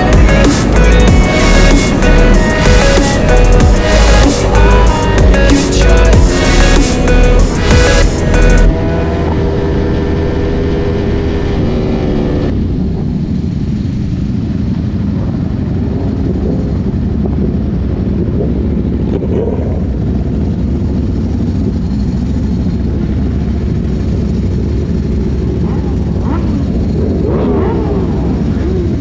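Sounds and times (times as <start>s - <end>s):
background music: 0.0s - 10.5s
motorcycle engine rumble: 0.0s - 29.0s
wind noise: 0.0s - 29.0s.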